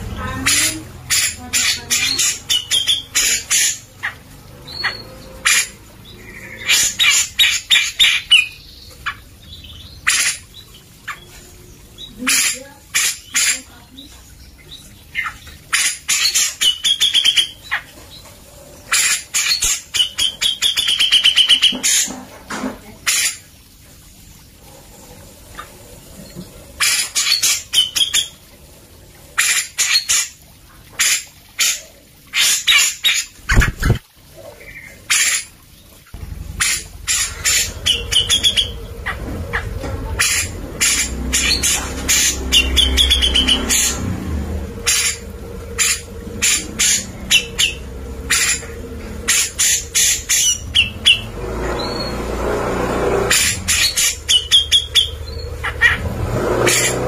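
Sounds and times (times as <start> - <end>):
bird chattering calls: 0.1 - 11.4, 12.0 - 13.8, 36.5 - 44.1, 44.7 - 52.1, 53.3 - 56.1.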